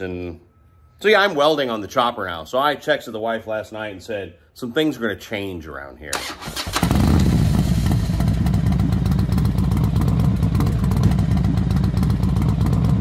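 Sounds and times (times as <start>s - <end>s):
motorcycle engine running: 6.7s - 13.0s.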